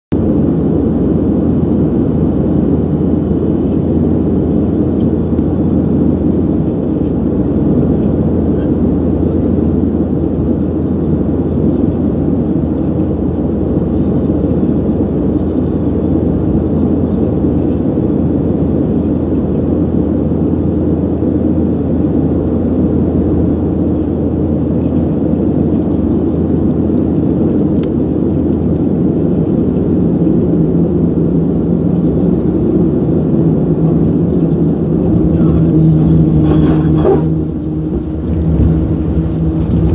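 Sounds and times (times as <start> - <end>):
turboprop engines droning: 0.1 - 39.9
faint high whine: 27.7 - 39.9.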